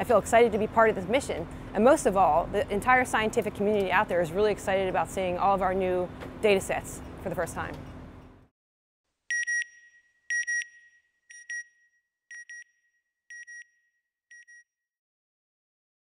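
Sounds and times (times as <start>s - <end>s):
high electronic double beep: 9.3s - 11.7s.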